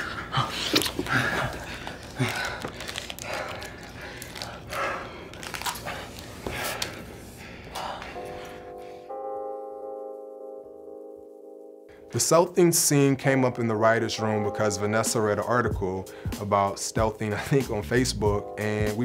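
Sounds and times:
men breathing heavily: 0:00.0 - 0:09.3, 0:16.0 - 0:16.4
sustained music chord: 0:08.1 - 0:16.6.

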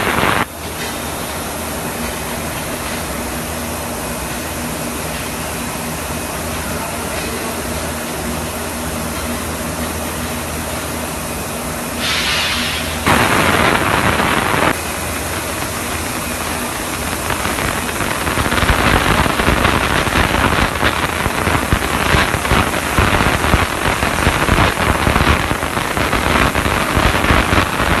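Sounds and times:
loud hiss: 0:00.0 - 0:00.5, 0:11.9 - 0:28.0.

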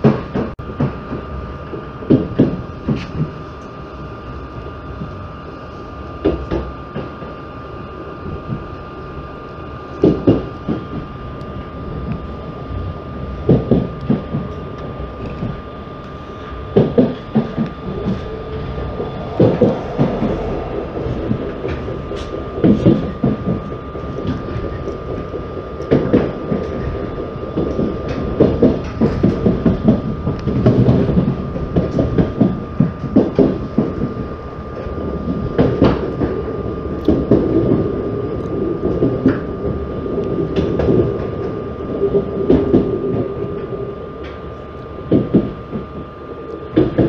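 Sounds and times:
train rumble: 0:00.0 - 0:47.0
steady high whine: 0:14.5 - 0:32.0, 0:32.6 - 0:46.8.

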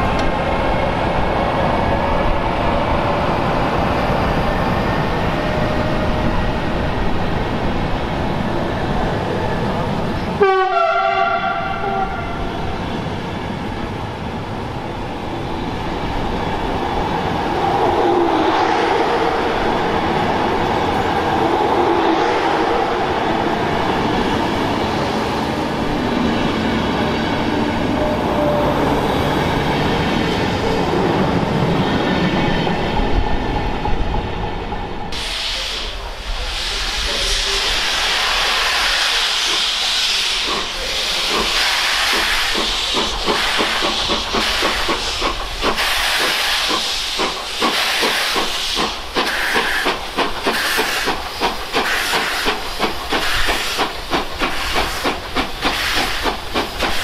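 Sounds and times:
train rumbling: 0:00.0 - 0:57.0
steam locomotive hissing: 0:35.1 - 0:57.0
steam exhaust chuffs: 0:35.2 - 0:57.0.

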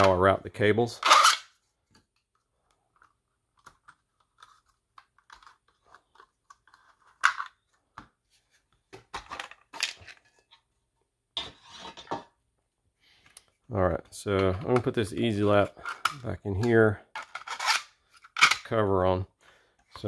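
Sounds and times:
plastic clicks and scrapes: 0:02.1 - 0:07.8.

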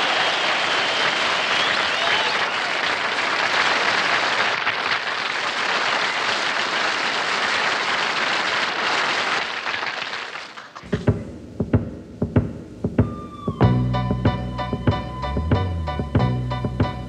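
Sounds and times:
audience applauding: 0:00.0 - 0:10.9.

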